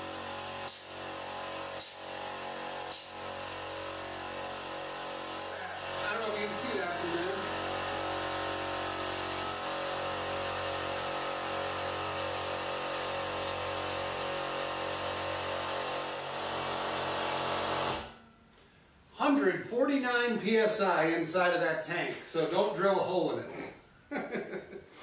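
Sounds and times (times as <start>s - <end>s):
electric air compressor running: 0.0s - 18.2s.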